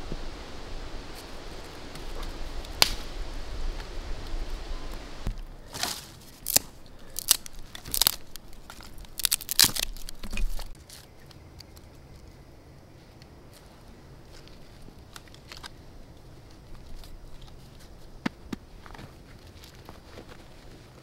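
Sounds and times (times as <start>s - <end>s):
dry twigs snapping: 1.9s - 12.4s, 14.3s - 15.8s.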